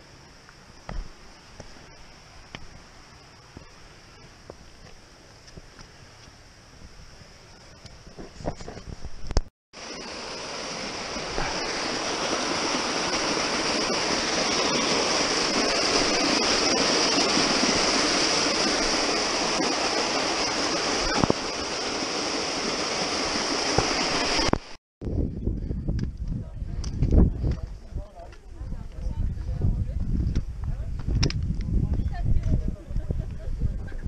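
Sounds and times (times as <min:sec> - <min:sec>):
waterfall rushing: 0:09.8 - 0:24.8.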